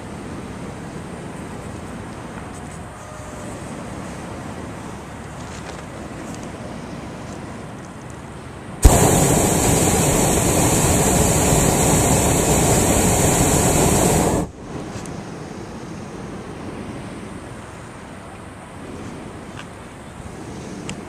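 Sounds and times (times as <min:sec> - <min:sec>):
quiet steady noise: 0:00.0 - 0:21.0
propane burner roaring: 0:08.8 - 0:14.6.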